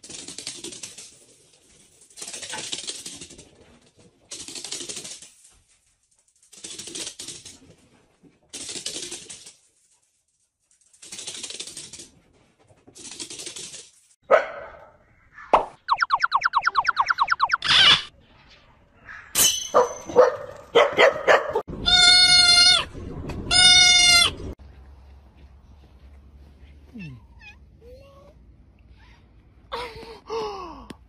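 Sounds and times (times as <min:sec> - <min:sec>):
puppies' claws on wooden floor: 0:00.0 - 0:14.2.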